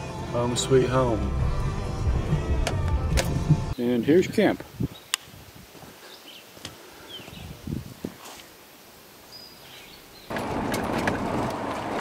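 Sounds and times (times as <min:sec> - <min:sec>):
pickup engine and road noise: 0:00.0 - 0:03.8, 0:10.3 - 0:12.0
woodland ambience: 0:00.0 - 0:11.0.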